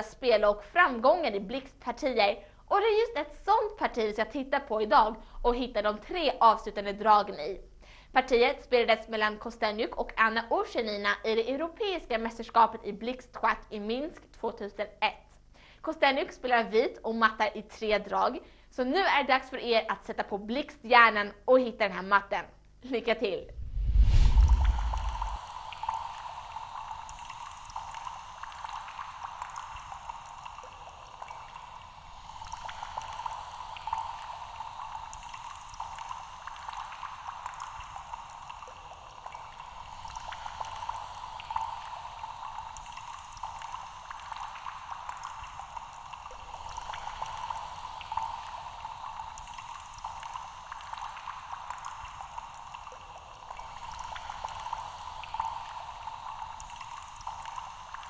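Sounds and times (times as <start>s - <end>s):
water bubbling: 23.5s - 58.0s.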